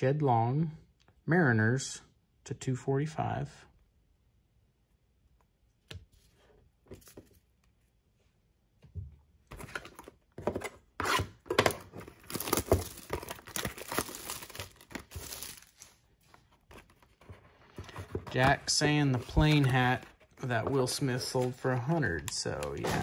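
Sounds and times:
plastic shrink wrap tearing: 12.1 - 16.0.

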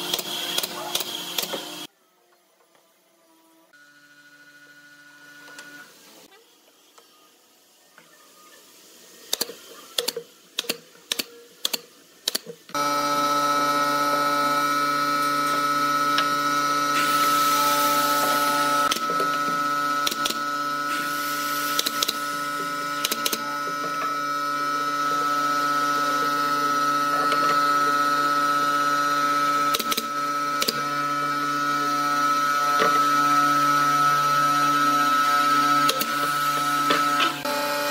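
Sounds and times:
air compressor humming: 0.0 - 1.9, 11.1 - 37.9
nail gun firing: 21.5 - 22.2, 22.9 - 23.4, 29.7 - 30.9.

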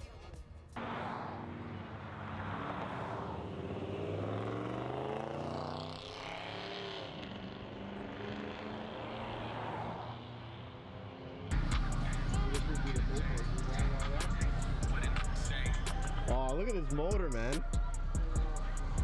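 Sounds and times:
tyre and traffic noise: 0.6 - 19.0.

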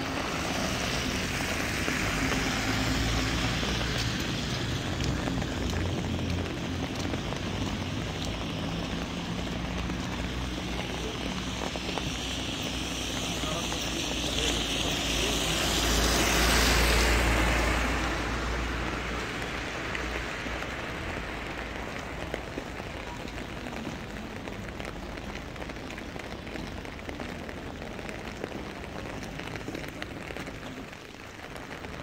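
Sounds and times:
vehicle passing: 0.0 - 22.6
raindrops ticking on surfaces: 0.0 - 32.0
steady rain falling: 0.0 - 32.0.

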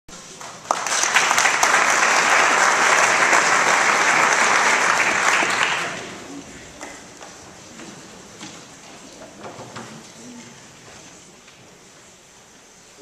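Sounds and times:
audience applauding: 0.4 - 7.0.

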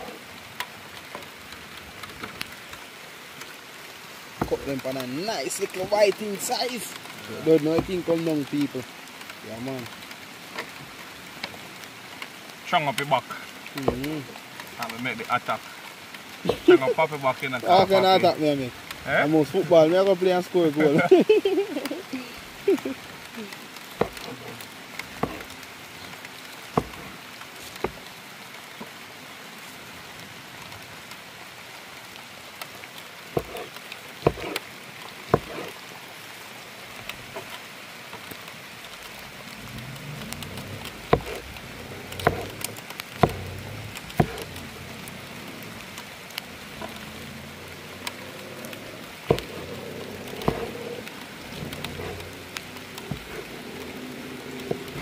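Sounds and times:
rain hiss: 0.0 - 55.0
sharp knocks: 24.0 - 24.4, 25.1 - 25.5, 26.8 - 27.2, 33.4 - 34.6, 35.3 - 35.7, 41.1 - 41.4, 42.1 - 44.6, 49.3 - 49.7, 53.0 - 53.4.

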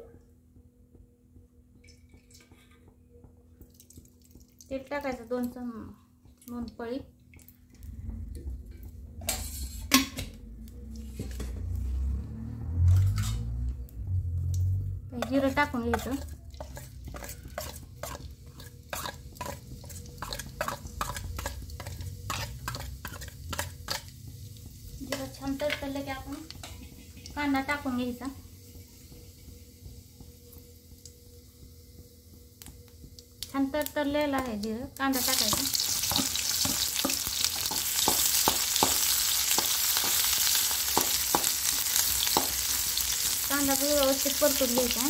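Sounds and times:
seeds crackling in hot oil: 3.6 - 8.0, 10.6 - 45.0
metal spatula knocking on pan: 35.4 - 42.8.

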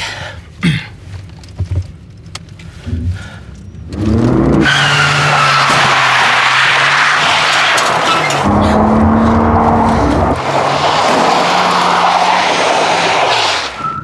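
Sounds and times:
car engine revving hard: 4.0 - 13.7
tyre squeal: 4.6 - 14.0.

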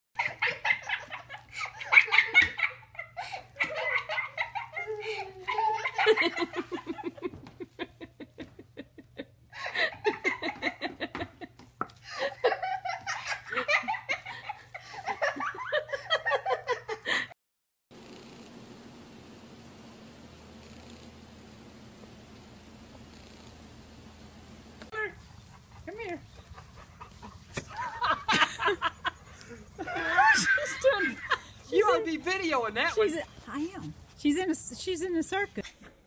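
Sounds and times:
people laughing: 0.2 - 17.3, 25.4 - 33.2.

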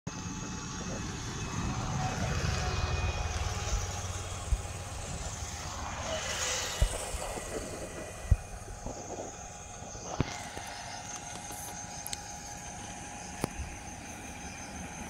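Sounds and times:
vehicle running: 0.1 - 15.0.

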